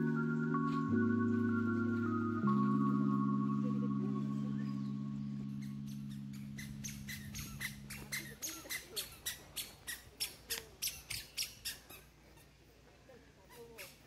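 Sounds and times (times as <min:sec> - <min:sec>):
low held tone: 0:00.0 - 0:08.5.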